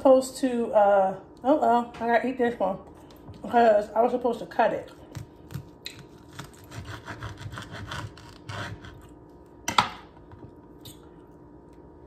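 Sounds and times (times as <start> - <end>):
knife sawing through leaf wrap: 6.1 - 9.0.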